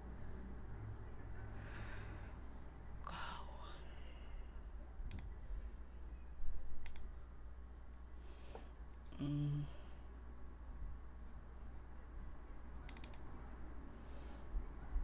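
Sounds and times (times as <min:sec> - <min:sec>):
low background hum: 0:00.0 - 0:15.0
computer mouse clicking: 0:05.1 - 0:05.4, 0:06.8 - 0:07.1, 0:12.9 - 0:13.3.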